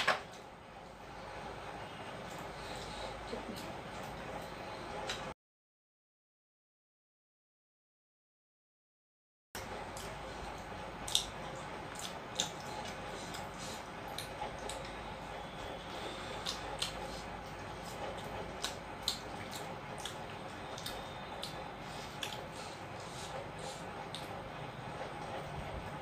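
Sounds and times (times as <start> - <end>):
steady background noise: 9.6 - 26.0
wet eating smacks: 11.9 - 14.9.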